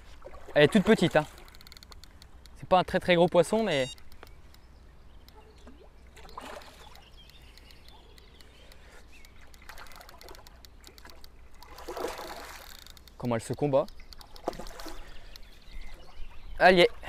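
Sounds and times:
fish splashing at the surface: 0:05.7 - 0:07.0, 0:09.6 - 0:12.8, 0:14.2 - 0:15.2.

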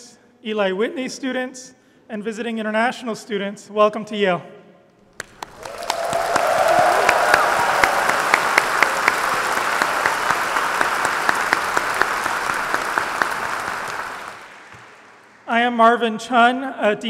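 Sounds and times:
large audience applauding: 0:05.1 - 0:15.5
sharp single claps: 0:05.2 - 0:15.5.

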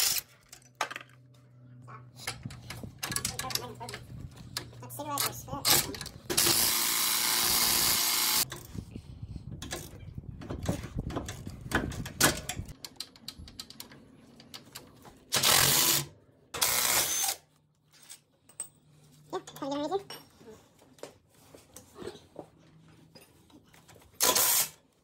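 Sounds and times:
impact wrench running: 0:06.3 - 0:08.4, 0:15.4 - 0:17.4.

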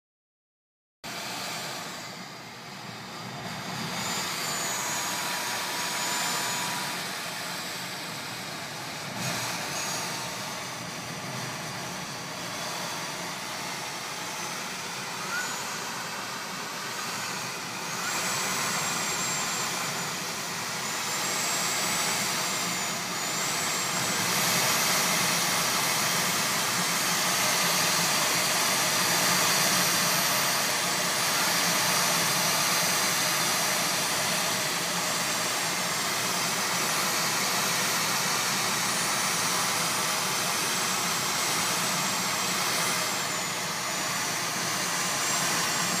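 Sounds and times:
faint high whistle: 0:14.4 - 0:20.1.

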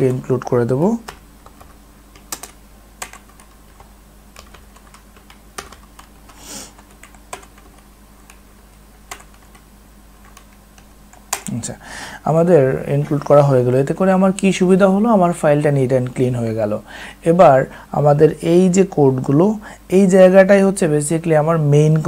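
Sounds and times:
faint low hum: 0:00.0 - 0:22.0
keyboard keystrokes: 0:01.0 - 0:08.4, 0:09.1 - 0:11.6.

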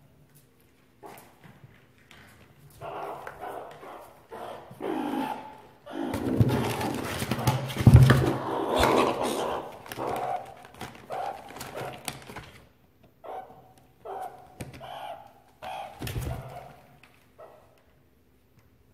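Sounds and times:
meerkat chirps: 0:02.8 - 0:06.1, 0:13.2 - 0:17.6
plastic bags crinkling: 0:09.8 - 0:12.7.

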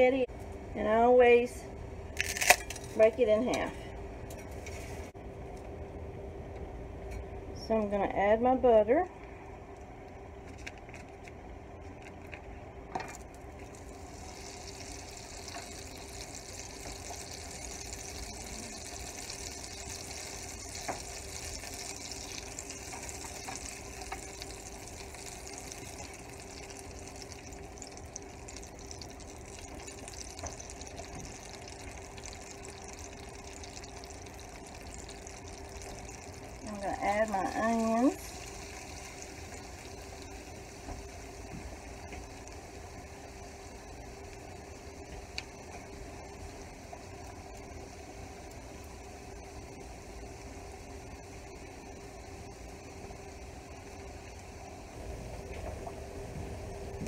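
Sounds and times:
faint steady hum: 0:00.0 - 0:57.0
butter sizzling in a skillet: 0:13.6 - 0:42.6.

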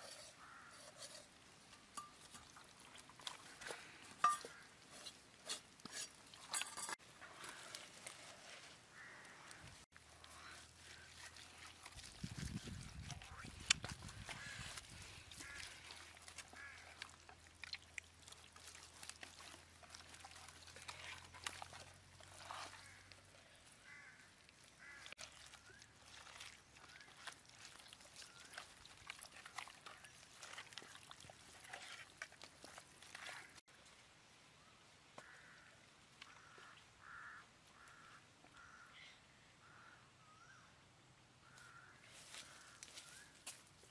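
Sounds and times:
wet squelching of kneading: 0:02.2 - 0:33.7.

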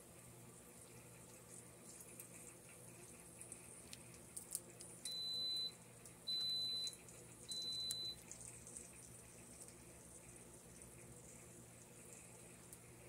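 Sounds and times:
pressure cooker beeping: 0:05.1 - 0:08.2.

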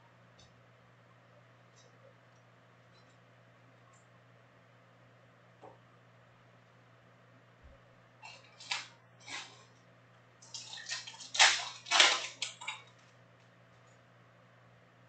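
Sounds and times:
foil wrapper crinkling and tearing: 0:08.3 - 0:09.6, 0:10.5 - 0:13.1.

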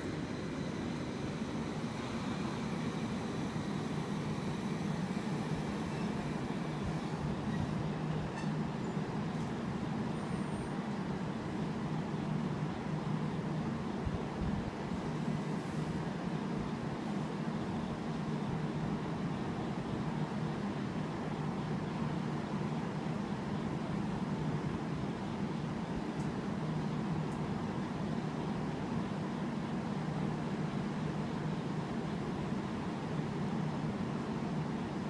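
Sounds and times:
faint high whining tones: 0:00.0 - 0:13.6
electric train humming: 0:00.0 - 0:35.0.

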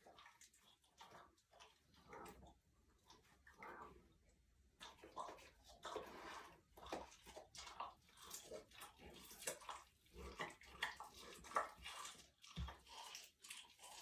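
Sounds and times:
animal chewing and tearing meat: 0:04.8 - 0:14.0.

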